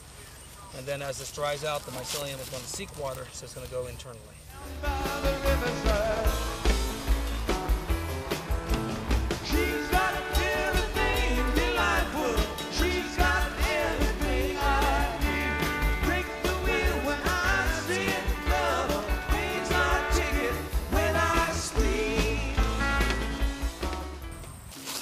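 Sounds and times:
bass: 0.0s - 25.0s
person singing rock song: 4.6s - 7.3s, 9.2s - 23.6s
drum beat: 4.7s - 24.2s.

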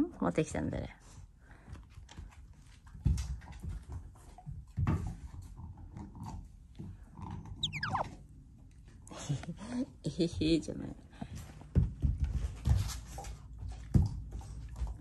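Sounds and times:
falling whistle: 7.6s - 8.1s.

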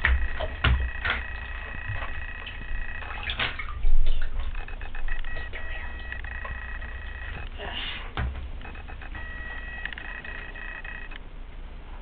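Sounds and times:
bath water splashing: 0.0s - 6.2s.

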